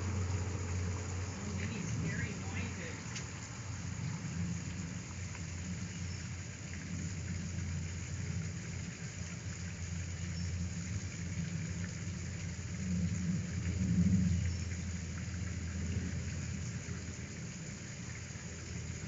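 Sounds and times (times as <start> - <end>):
low rumble with light hiss: 0.0 - 19.0.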